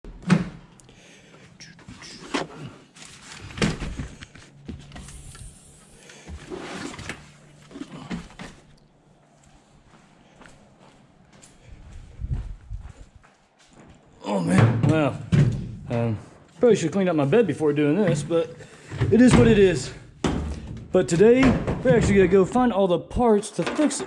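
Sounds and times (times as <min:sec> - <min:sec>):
knocks and rustling: 0:02.0 - 0:05.4, 0:18.0 - 0:22.5.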